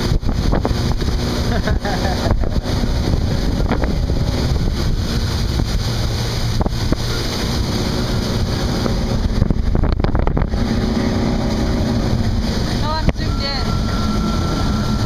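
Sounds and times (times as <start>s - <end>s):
motorboat engine hum: 0.0s - 15.0s
water rushing past hull: 0.0s - 15.0s
wind buffeting microphone: 0.0s - 15.0s.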